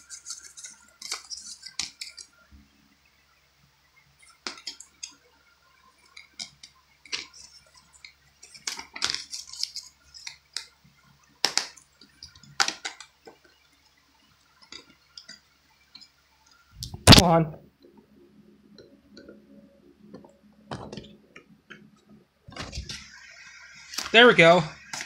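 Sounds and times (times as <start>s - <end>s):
paper rustling: 0.0s - 2.3s, 7.1s - 10.7s.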